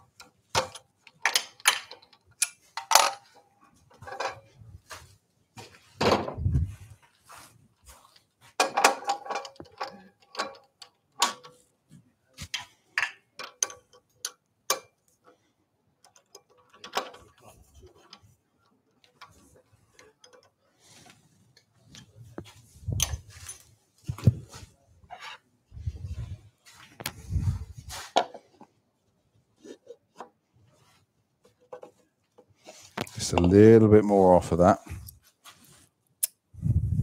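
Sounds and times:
metal chuck clinking and knocking: 0.1 - 4.5, 8.6 - 11.6, 12.6 - 15.1, 16.0 - 18.2, 19.0 - 20.6.

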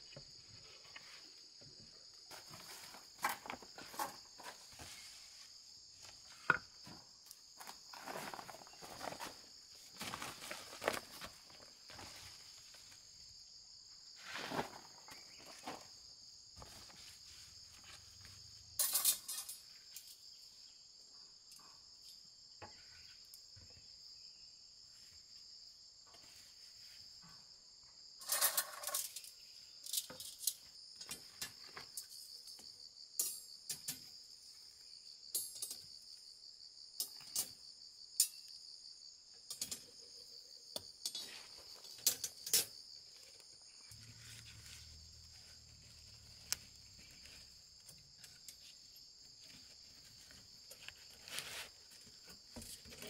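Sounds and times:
insects chirring: 0.0 - 53.0
plastic sacks rustling: 7.9 - 12.8.

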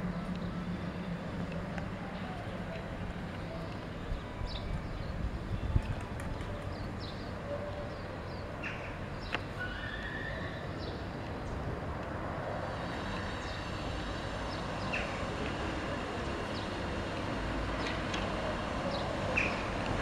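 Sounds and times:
street traffic noise: 0.0 - 20.0.

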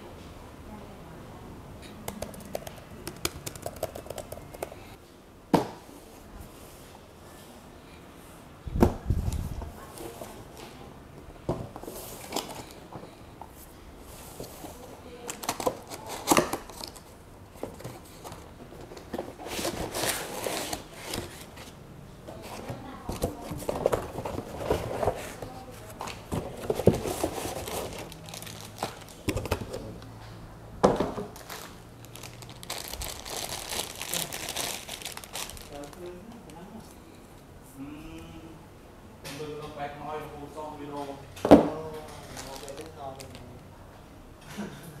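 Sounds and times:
plastic and foam crinkling: 14.3 - 29.8, 31.2 - 36.3, 42.1 - 43.5.

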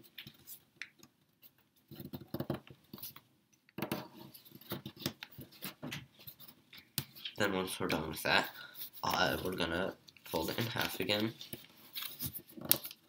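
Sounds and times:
paper rustling and crinkling: 8.8 - 13.0.

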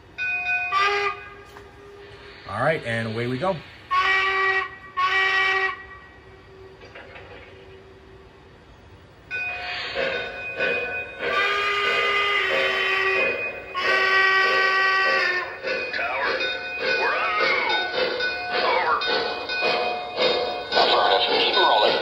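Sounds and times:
model train steam whistle: 0.7 - 2.2, 3.9 - 6.8, 11.2 - 15.6.

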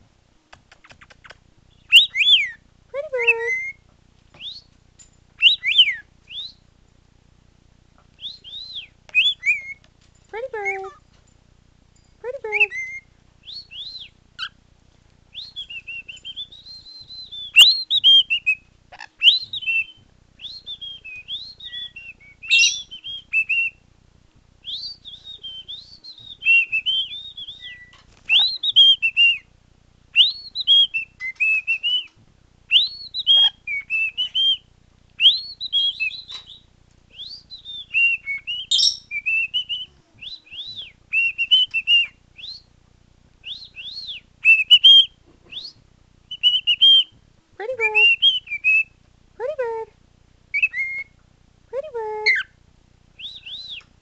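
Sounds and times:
cockatiel whistling: 1.8 - 2.6, 5.4 - 6.6, 8.2 - 9.8, 12.7 - 14.6, 15.3 - 18.6, 19.2 - 23.8, 24.6 - 29.5, 30.1 - 32.1, 32.7 - 34.6, 35.2 - 42.7, 43.4 - 47.1, 48.0 - 49.0, 50.5 - 51.2, 53.2 - 53.9.

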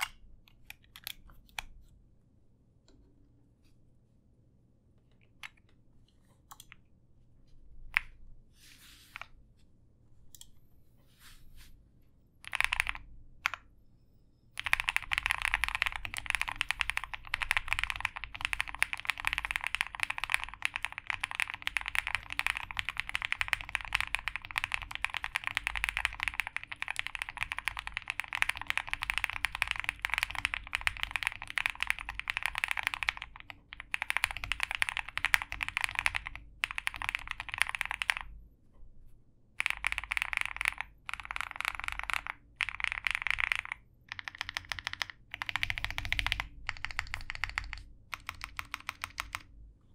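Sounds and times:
mechanical keyboard typing: 12.4 - 13.7, 14.6 - 38.3, 39.6 - 49.5.

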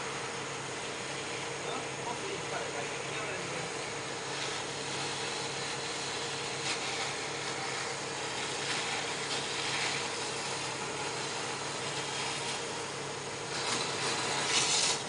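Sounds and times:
motor-driven machine humming: 0.0 - 15.0
brief scraping sounds: 13.6 - 15.0.

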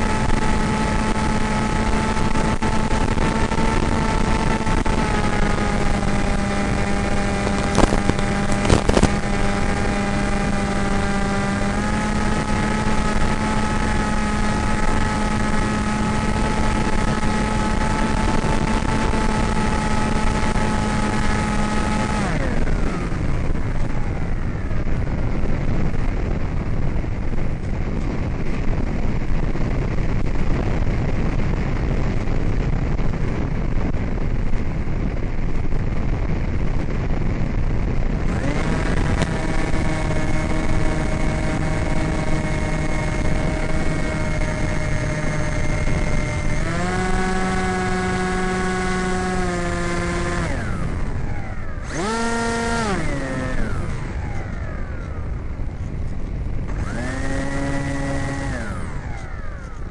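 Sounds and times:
electric motor and propeller whine: 0.0 - 59.9.

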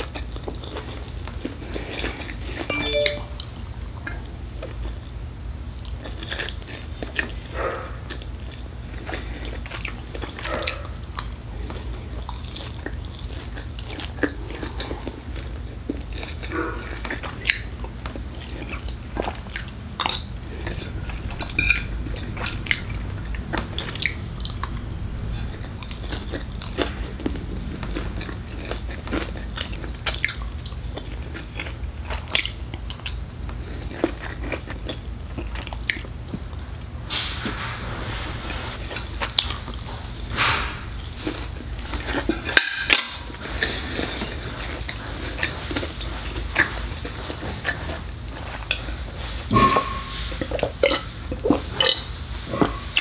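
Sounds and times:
air conditioner hum: 0.0 - 53.0
chewing and mouth noises: 5.8 - 36.9, 41.2 - 49.0.

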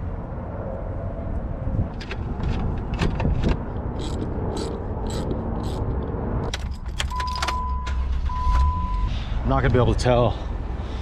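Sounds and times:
ratchet wrench clicking: 4.0 - 6.0
ignition key clicks: 6.5 - 8.0.

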